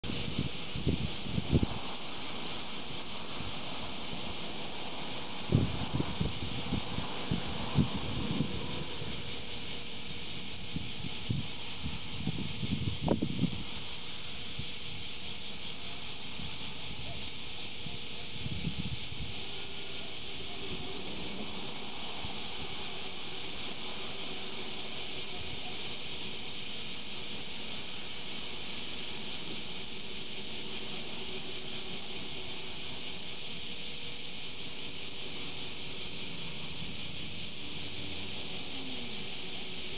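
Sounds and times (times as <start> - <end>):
wind buffeting microphone: 0.0 - 2.1, 3.2 - 15.1, 16.3 - 19.6
cicadas droning: 0.0 - 39.9.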